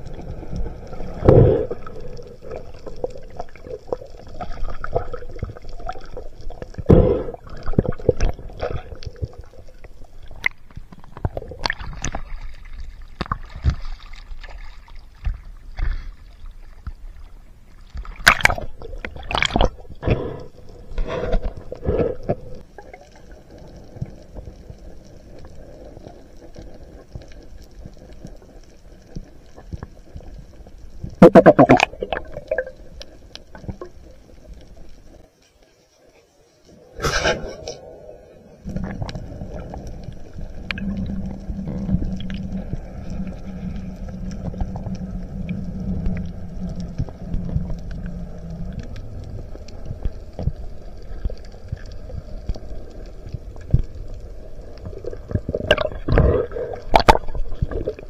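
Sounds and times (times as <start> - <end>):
low underwater rumble: 0.0 - 35.2, 37.0 - 58.0
water sloshing and splashing: 7.5 - 20.3, 54.8 - 58.0.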